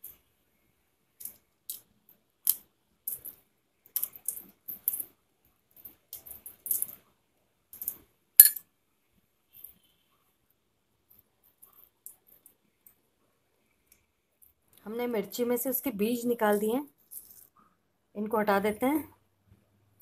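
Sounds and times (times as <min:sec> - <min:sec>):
knife clinking against glass: 0:08.4 - 0:08.6
seeds falling into glass bowl: 0:08.4 - 0:08.6.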